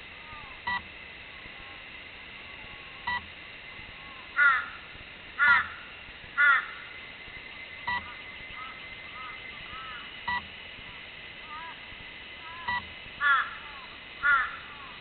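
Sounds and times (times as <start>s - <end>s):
faint steady high tone: 0.0s - 4.9s, 6.8s - 12.9s
short electronic beeps: 0.7s - 0.9s, 7.7s - 9.5s, 12.6s - 12.9s
crow cawing: 4.4s - 6.9s, 8.0s - 10.1s, 12.4s - 15.0s.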